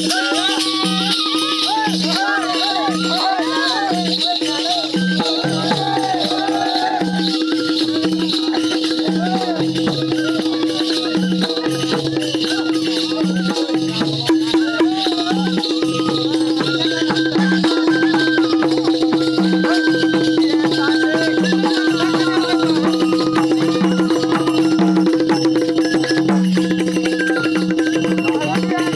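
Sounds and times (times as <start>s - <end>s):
jingling percussion: 0.0s - 28.9s
wavering higher melody: 0.0s - 28.9s.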